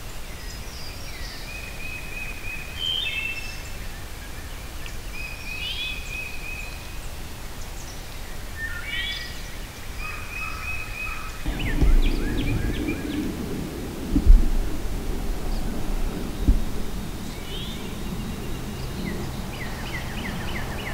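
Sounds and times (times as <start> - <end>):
songbirds singing: 0.3 - 20.9
sharp thump: 11.5 - 17.9.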